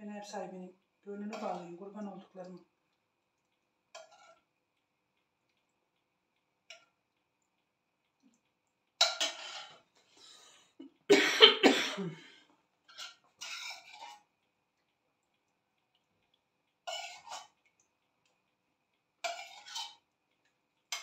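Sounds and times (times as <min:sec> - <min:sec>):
person coughing: 0:11.1 - 0:12.4.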